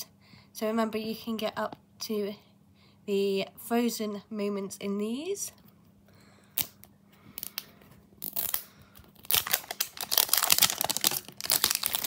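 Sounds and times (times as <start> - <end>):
plastic wrap crinkling and tearing: 7.4 - 12.0.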